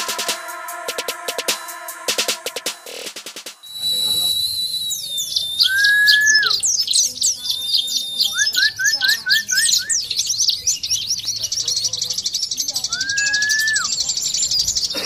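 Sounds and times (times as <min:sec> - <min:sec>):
bird twittering: 0:03.7 - 0:15.0.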